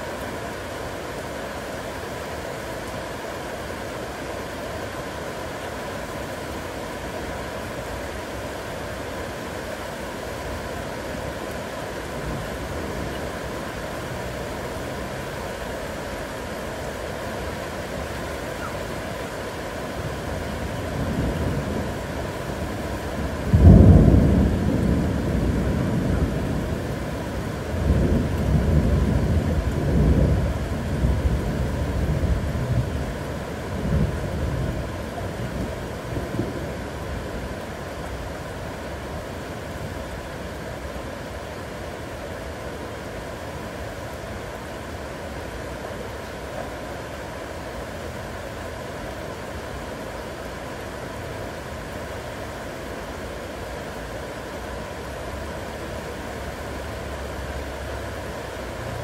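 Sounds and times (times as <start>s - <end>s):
heavy rain falling: 0.0s - 59.0s
thunder rumbling: 20.9s - 37.2s.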